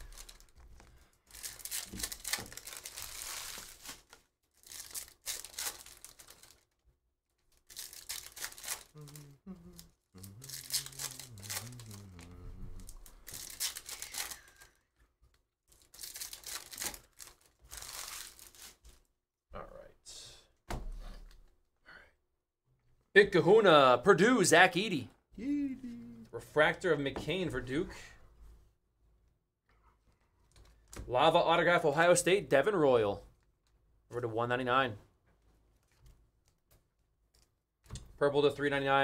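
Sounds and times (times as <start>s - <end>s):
card wrappers ripping and rustling: 0.0s - 6.8s, 7.5s - 14.8s, 15.7s - 19.1s.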